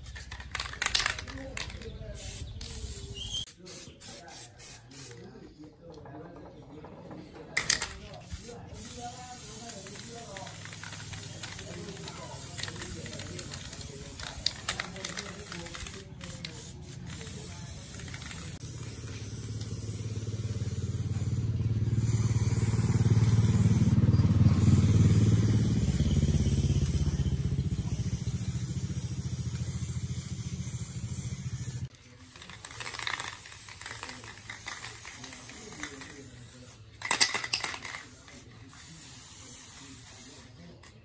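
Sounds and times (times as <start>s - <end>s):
small engine running: 19.6s - 31.8s.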